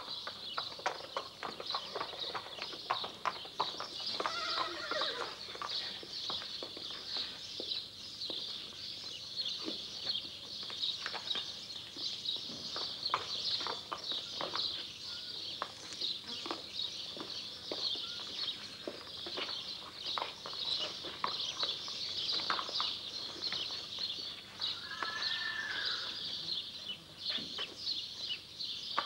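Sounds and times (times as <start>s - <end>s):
hooves clip-clopping on hard ground: 0.0s - 29.0s
horse neighing: 4.2s - 5.4s, 24.8s - 26.2s.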